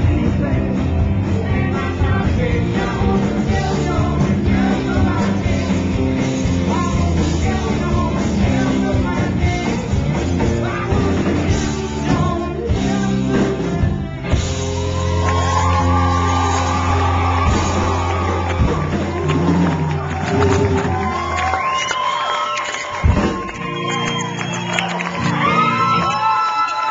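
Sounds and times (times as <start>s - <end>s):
person singing: 0.0s - 21.0s
drums: 0.0s - 26.9s
electric guitars: 0.0s - 26.9s.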